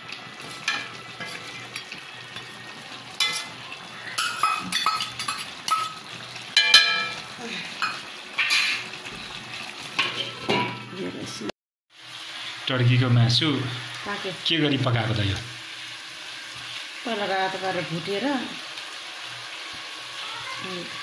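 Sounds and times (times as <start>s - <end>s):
low steady sizzle: 0.0s - 21.0s
metal ladle scraping metal pan: 3.2s - 6.0s.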